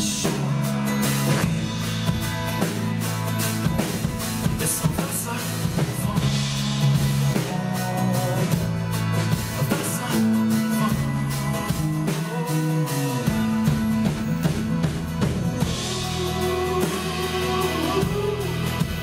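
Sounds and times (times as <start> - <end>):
man singing: 0.0 - 1.2, 4.4 - 19.0
acoustic guitar strumming: 0.0 - 19.0
drum kit: 0.0 - 19.0
electric bass: 0.0 - 19.0.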